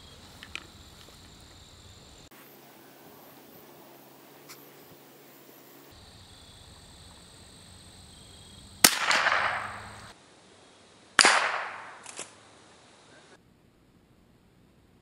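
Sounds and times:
rifle shots: 8.8 - 10.1, 11.2 - 12.4.

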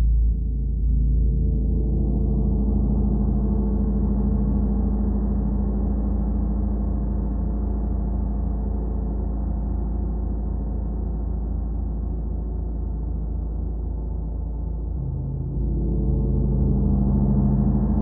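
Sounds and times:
gong sustained ringing: 14.8 - 18.0.

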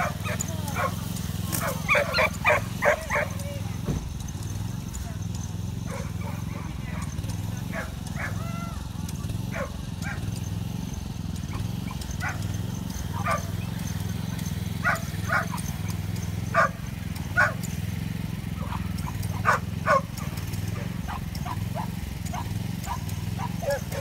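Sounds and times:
dog barking and yelping: 0.0 - 3.5, 5.8 - 8.7, 9.5 - 10.3, 11.4 - 14.0, 14.8 - 16.8, 17.4 - 17.8, 18.6 - 24.0.

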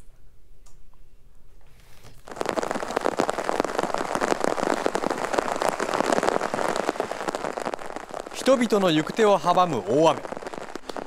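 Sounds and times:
very heavy rain pouring: 2.2 - 11.0.

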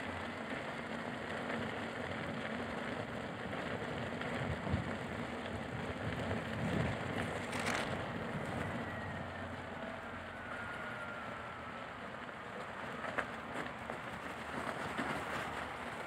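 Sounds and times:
faint motor whine: 0.0 - 16.0
wind on microphone: 4.4 - 8.9.

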